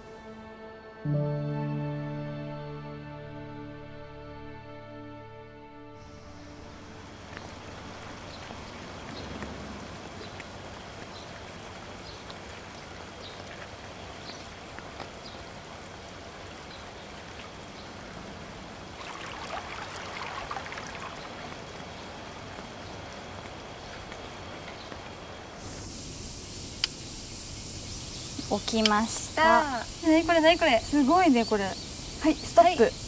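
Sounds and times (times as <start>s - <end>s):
water running in a canal: 6.0s - 33.0s
faint ticks: 26.7s - 27.1s, 28.4s - 29.3s.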